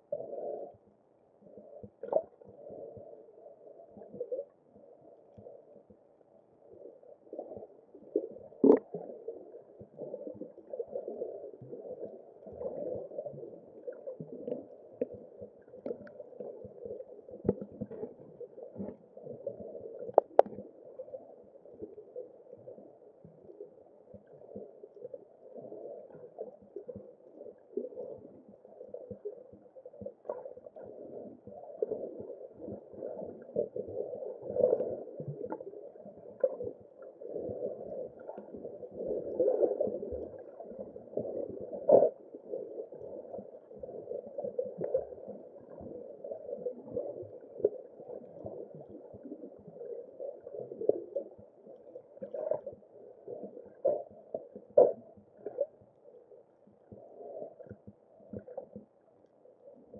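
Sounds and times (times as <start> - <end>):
muffled underwater churning: 0.0 - 59.9
faint clicks: 20.0 - 20.7.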